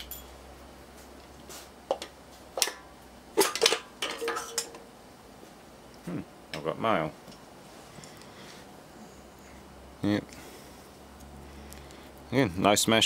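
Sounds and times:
metal parts clinking: 0.0s - 0.3s, 3.4s - 4.8s.

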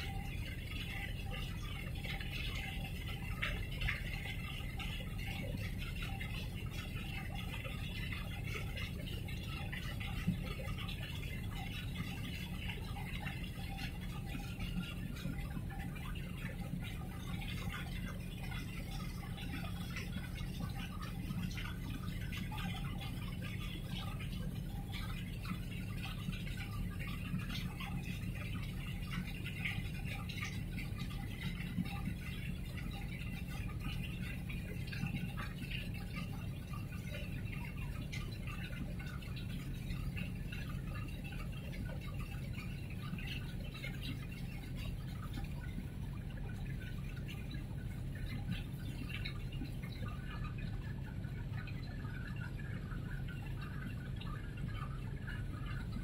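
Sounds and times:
fine steady crackle: 0.0s - 56.0s
water lapping and splashing: 0.0s - 56.0s.

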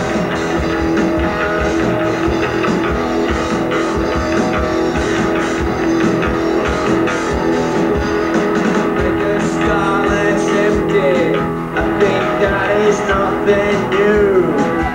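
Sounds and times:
drum hits: 0.0s - 14.9s
live rock band playing: 0.0s - 14.9s.

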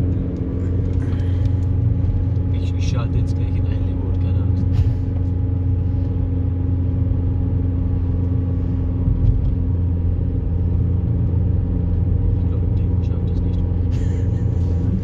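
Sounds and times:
tyre and road noise: 0.0s - 6.4s
car engine drone: 0.0s - 15.0s.

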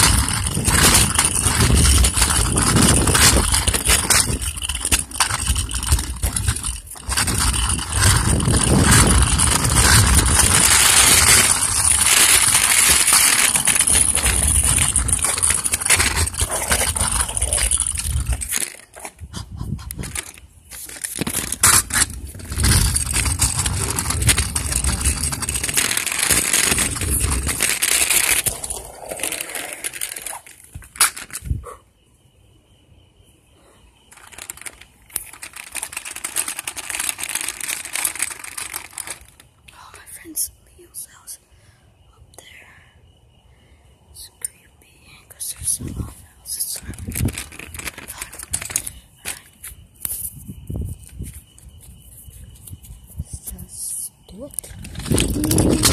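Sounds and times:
rubbing and scraping on microphone: 0.0s - 28.8s.

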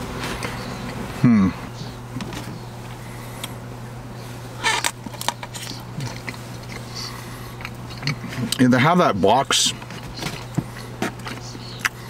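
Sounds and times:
chewing: 5.5s - 8.6s, 9.8s - 12.0s.

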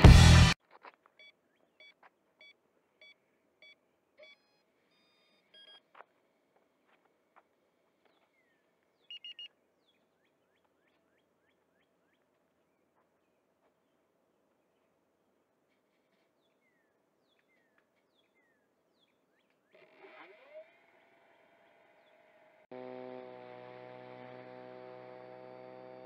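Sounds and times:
faint bird chirps: 1.2s - 6.0s, 8.0s - 14.1s, 15.7s - 20.7s
faint electronic beeps: 1.2s - 6.1s, 9.0s - 9.6s.

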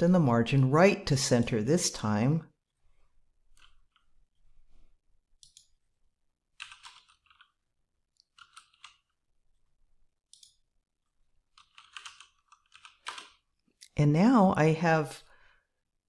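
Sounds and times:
typing on a keyboard: 6.6s - 7.6s, 8.2s - 9.1s, 11.5s - 13.4s.

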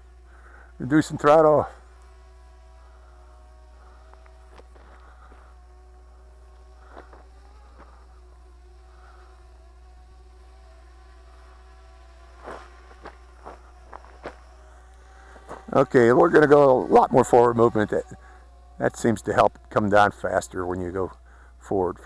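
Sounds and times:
distant drone propellers whining: 0.0s - 22.0s.

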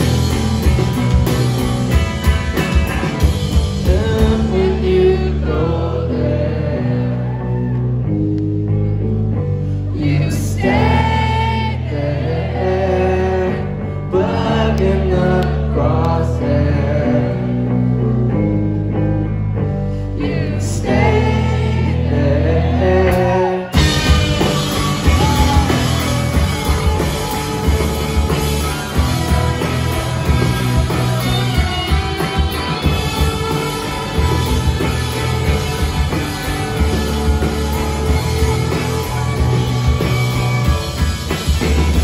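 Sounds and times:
drums and cymbals: 0.0s - 4.8s, 23.8s - 42.0s
live rock band: 0.0s - 42.0s
man singing: 3.6s - 7.3s, 9.9s - 17.7s, 20.2s - 31.4s.

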